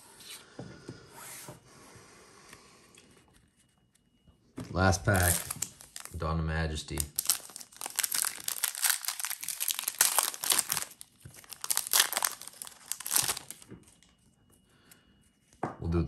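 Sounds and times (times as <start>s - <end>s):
foil wrapper crinkling and tearing: 4.8s - 6.2s, 6.8s - 14.1s.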